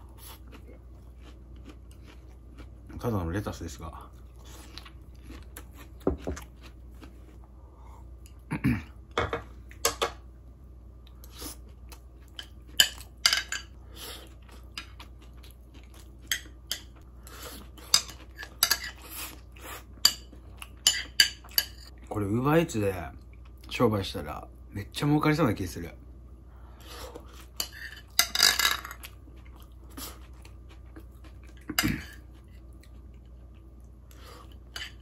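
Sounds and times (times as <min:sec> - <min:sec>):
spoon and chopsticks clinking on bowl: 0:20.0 - 0:21.9.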